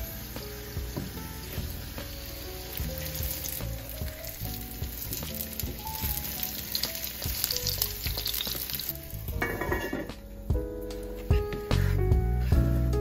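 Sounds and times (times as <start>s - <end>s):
pastries sizzling in pan: 0.0s - 10.2s
soft background music: 0.0s - 13.0s.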